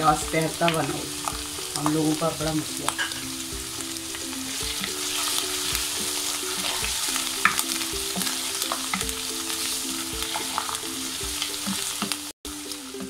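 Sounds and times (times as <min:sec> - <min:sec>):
vegetables sizzling in hot oil: 0:00.0 - 0:13.0
wooden spoon scraping pan: 0:04.4 - 0:12.2.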